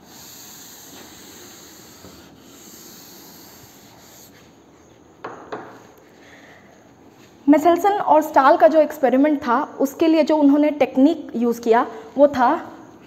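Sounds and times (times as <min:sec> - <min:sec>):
eraser rubbing blackboard: 0:00.0 - 0:04.6.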